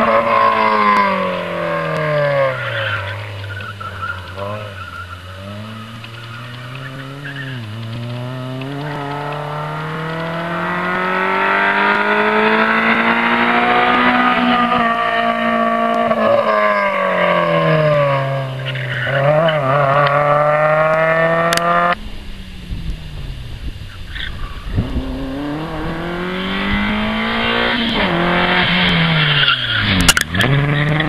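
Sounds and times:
rally car engine accelerating: 0.0s - 31.0s.

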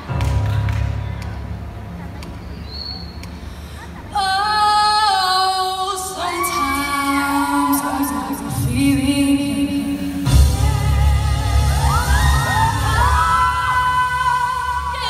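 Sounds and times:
deep bass: 0.0s - 4.1s, 10.2s - 15.0s
sustained low accompaniment: 0.0s - 4.9s
woman singing ballad: 4.1s - 15.0s.

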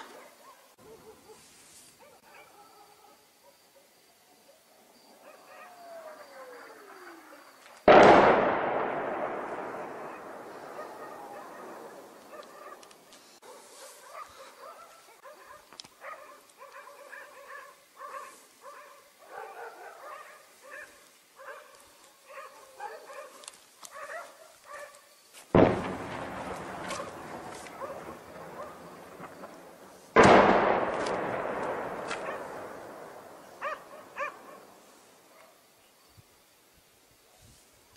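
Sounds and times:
dogs barking: 2.0s - 3.9s, 5.2s - 6.7s, 10.0s - 25.0s, 26.9s - 29.0s, 32.2s - 32.8s, 33.4s - 35.6s
shell explosions booming: 7.9s - 13.0s, 25.6s - 34.7s.

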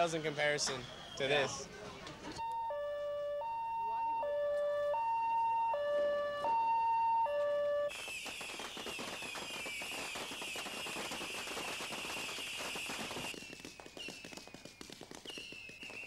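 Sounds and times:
firework rockets whistling: 0.0s - 1.7s, 7.9s - 16.0s
crackle of small bangs: 7.9s - 16.0s.

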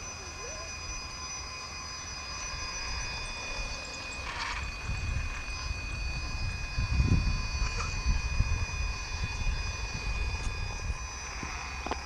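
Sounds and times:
electric motor whining: 0.0s - 12.0s.

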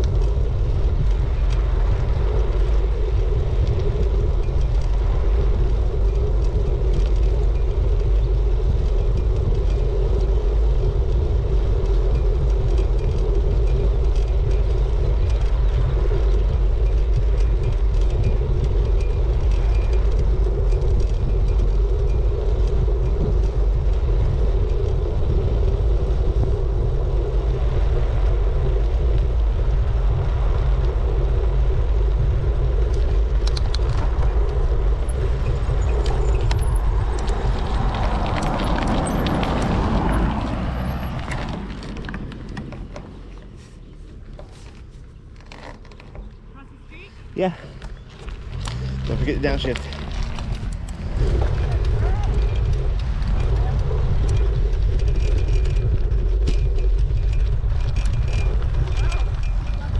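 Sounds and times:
wind buffeting microphone: 0.0s - 59.9s
vehicle passing: 19.4s - 45.2s, 46.3s - 59.9s.

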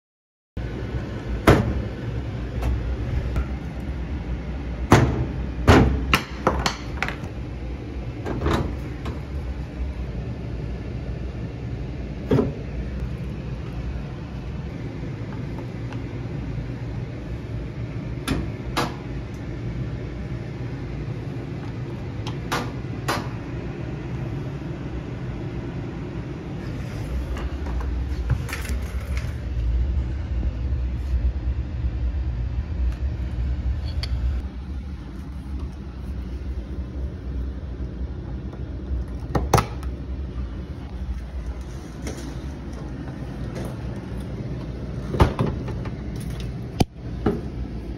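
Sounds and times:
heavy low rumble: 0.6s - 6.1s
washer humming: 0.6s - 47.9s.

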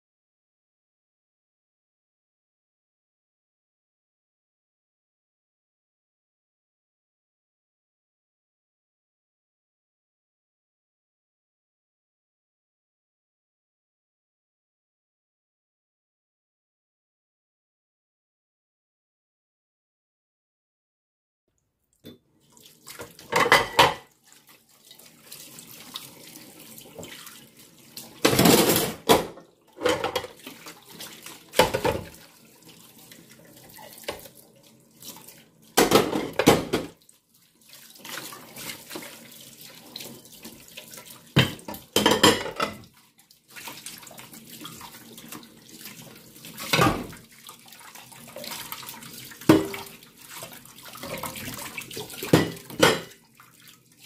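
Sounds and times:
tap water splashing on dishes: 21.9s - 54.0s
sponge scrubbing: 37.3s - 41.3s.

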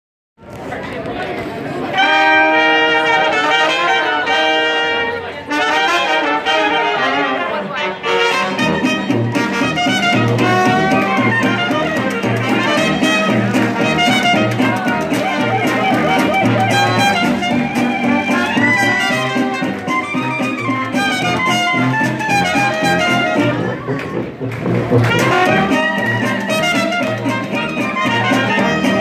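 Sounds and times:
clarinet: 1.9s - 29.0s
jazz band playing: 1.9s - 29.0s
trombone: 1.9s - 29.0s
banjo and guitar rhythm: 7.8s - 29.0s
sousaphone bass notes: 8.7s - 29.0s.

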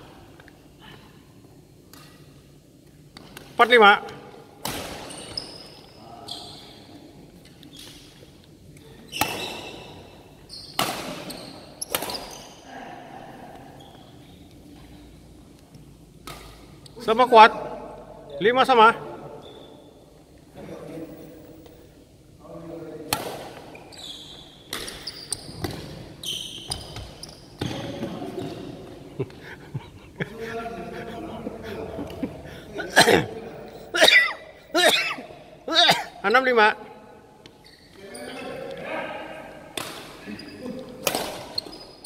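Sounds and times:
racquet hitting shuttlecock: 4.6s - 5.2s, 10.8s - 12.4s, 16.2s - 16.7s, 23.1s - 23.7s, 39.7s - 40.2s, 41.0s - 41.6s
sneakers squeaking on wooden floor: 5.0s - 7.0s, 9.0s - 12.6s, 19.3s - 20.0s, 23.5s - 28.7s, 37.5s - 38.5s, 40.2s - 42.0s
rackets striking shuttlecock: 41.0s - 41.6s.

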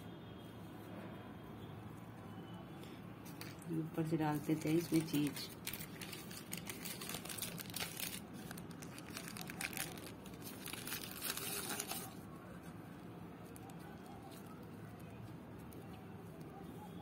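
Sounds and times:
plastic wrapper crinkling: 4.3s - 12.7s.

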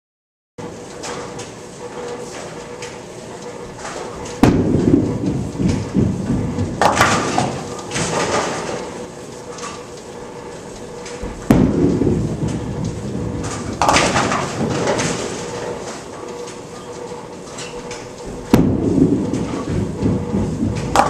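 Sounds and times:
bowling ball rolling: 4.3s - 8.9s, 11.2s - 15.9s, 18.3s - 21.0s
bowling pins crashing: 4.4s - 8.8s, 11.2s - 15.7s, 18.4s - 21.0s.

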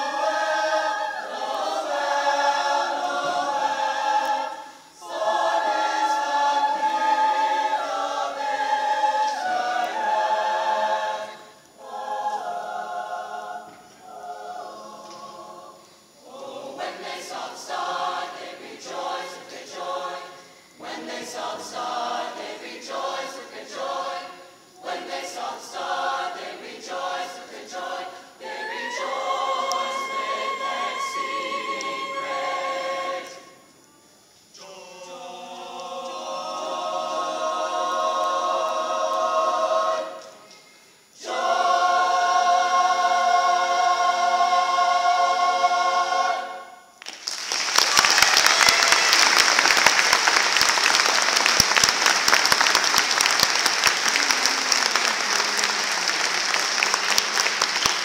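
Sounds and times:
mixed choir singing in harmony: 0.0s - 58.0s
audience applause: 47.0s - 58.0s.

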